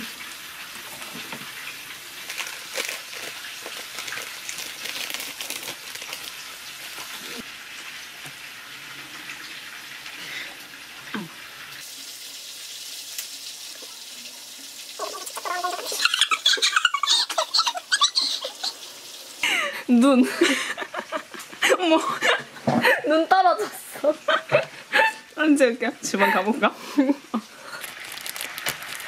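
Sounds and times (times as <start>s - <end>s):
meat sizzling in a pan: 0.0s - 19.6s, 26.8s - 29.0s.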